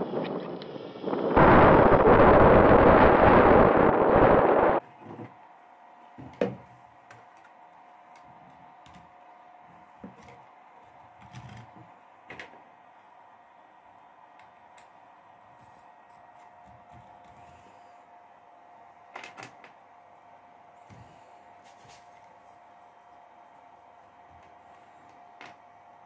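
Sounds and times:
faint steady hum: 0.0 - 26.0
loud rushing noise: 1.4 - 4.8.

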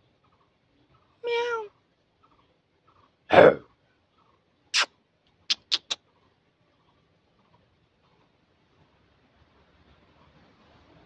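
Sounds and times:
monkey call: 4.2 - 4.9, 5.5 - 6.2.

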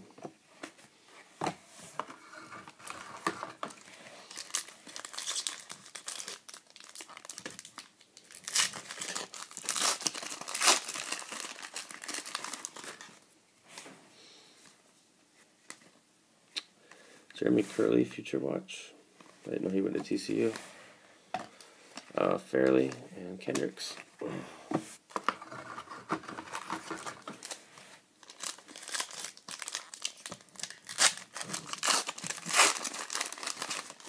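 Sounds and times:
foil wrapper crinkling and tearing: 4.2 - 13.1, 28.2 - 34.0.

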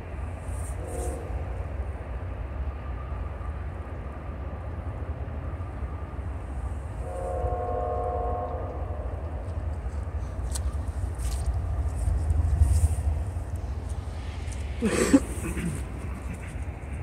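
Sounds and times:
diesel locomotive rumble: 0.0 - 17.0
locomotive air horn blast: 0.6 - 1.4, 7.0 - 9.0.

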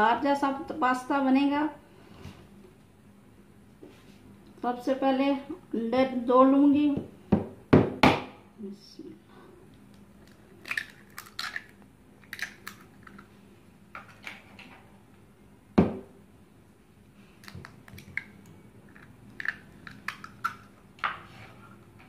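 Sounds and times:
eggshells cracking on a bowl: 9.9 - 13.3, 17.4 - 20.9.

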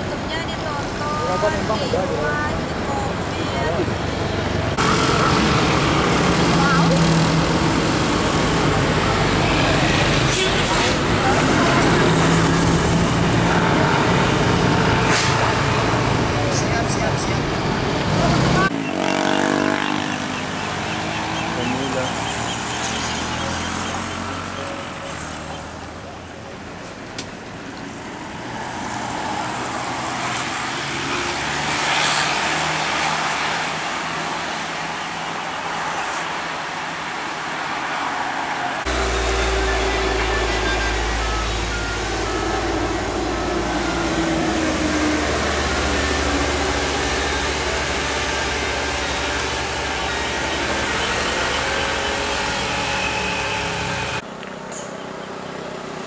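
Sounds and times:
diesel bus engine rumble: 0.0 - 18.7, 38.7 - 56.0
bus driving past: 0.0 - 56.0.

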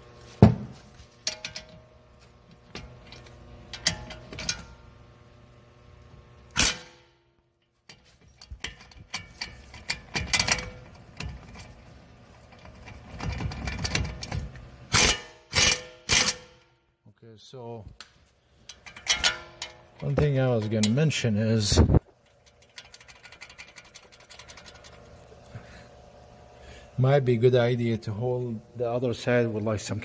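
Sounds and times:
metal knocks and clanks: 18.7 - 21.0
wrench clicking: 22.2 - 25.0.

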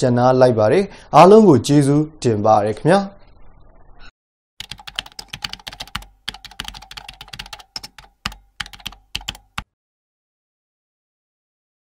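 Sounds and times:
keyboard key clicks: 4.6 - 9.7.

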